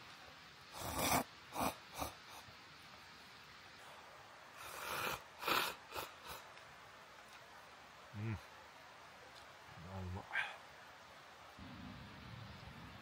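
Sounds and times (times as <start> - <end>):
person slurping noodles: 0.8 - 2.1, 4.6 - 6.4.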